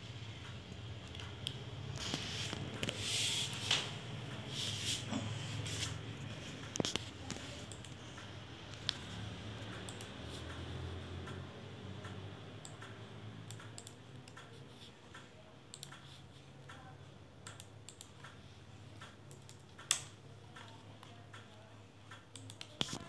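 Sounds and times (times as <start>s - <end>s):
mouse and keyboard clicks: 6.6s - 9.1s, 19.0s - 23.0s.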